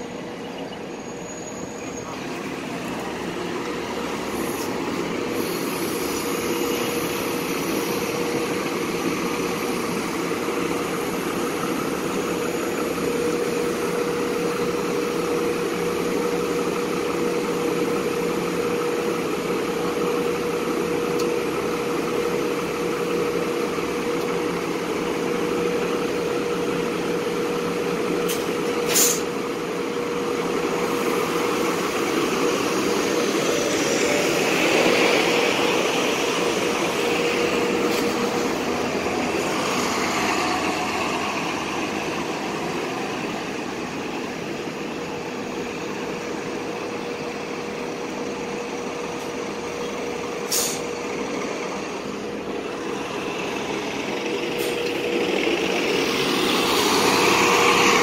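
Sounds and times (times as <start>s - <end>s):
bus engines idling: 0.0s - 58.0s
sharp air hiss: 4.3s - 8.1s, 28.3s - 29.3s, 50.4s - 51.0s.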